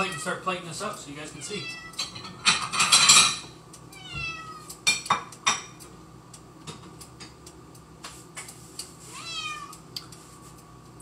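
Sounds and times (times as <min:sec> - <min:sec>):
cat meowing: 0:00.0 - 0:00.4, 0:01.4 - 0:02.2, 0:03.9 - 0:04.8, 0:09.1 - 0:09.8
dishes clinking: 0:01.9 - 0:03.5.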